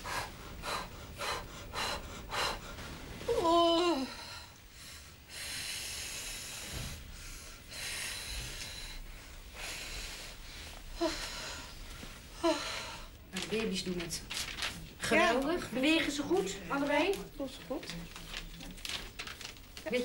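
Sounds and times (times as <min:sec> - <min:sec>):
woman breathing quickly: 0:00.0 - 0:13.2
woman moaning: 0:03.3 - 0:04.5.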